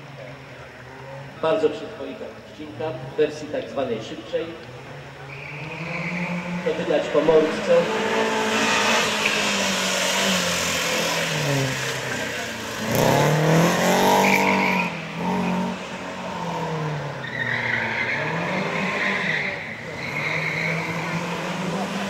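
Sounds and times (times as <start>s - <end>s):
rally car engine revving: 4.5s - 22.0s
tyres squealing: 5.2s - 7.7s, 10.9s - 15.8s, 16.4s - 21.7s.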